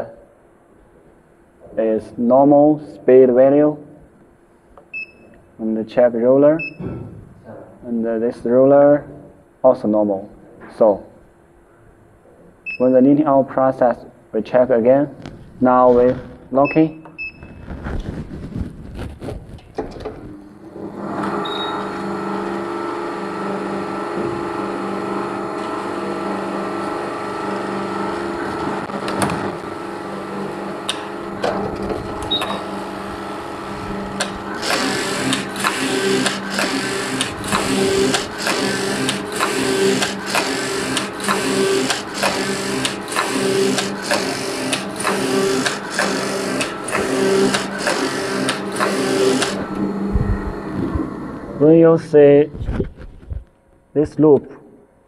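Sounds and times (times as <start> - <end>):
knitting machine humming: 20.3 - 51.7
machine clatter: 34.2 - 49.6.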